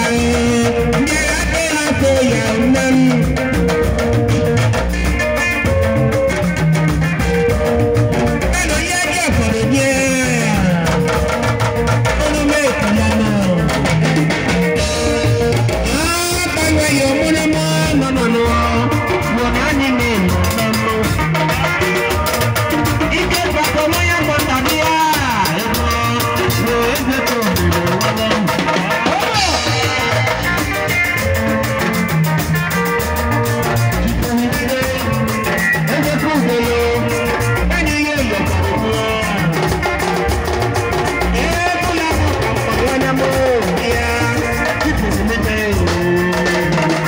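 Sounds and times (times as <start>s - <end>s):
man singing into a microphone: 0.0s - 3.8s, 8.4s - 11.4s, 12.0s - 14.6s, 15.8s - 22.2s, 22.9s - 31.2s, 33.8s - 40.2s, 41.1s - 47.0s
drum kit beat: 0.0s - 47.0s
electric guitars: 0.0s - 47.0s.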